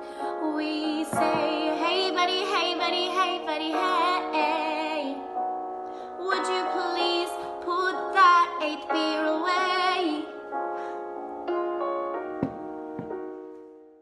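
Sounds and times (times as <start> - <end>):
keyboard chords: 0.0 - 14.0
woman singing pop tune: 0.2 - 5.2, 6.2 - 10.3.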